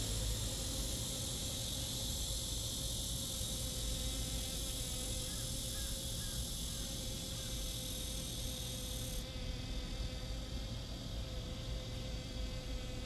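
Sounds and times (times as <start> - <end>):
high-pitched insect chorus: 0.0 - 9.3.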